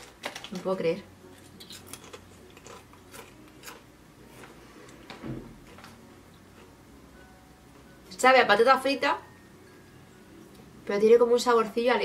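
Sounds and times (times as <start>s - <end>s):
potato chip crunching: 1.4s - 3.9s.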